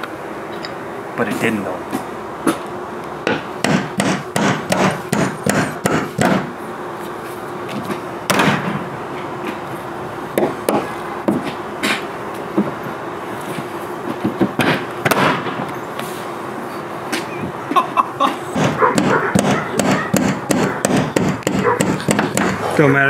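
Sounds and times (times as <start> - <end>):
hammer striking wooden board: 3.2 - 6.5, 8.3 - 8.8, 14.4 - 15.6, 18.6 - 22.6.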